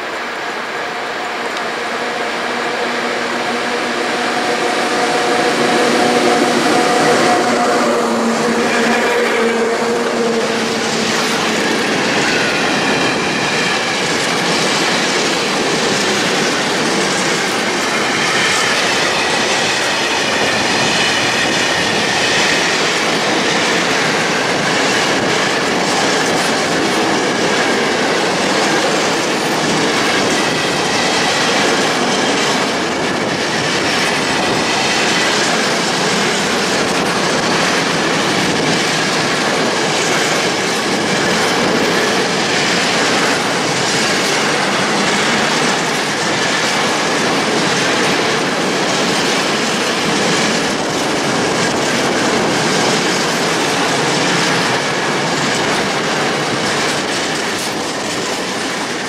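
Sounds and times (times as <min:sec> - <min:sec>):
train wheels running on rails: 0:00.0 - 0:59.0
high wheel squeal: 0:01.0 - 0:14.6.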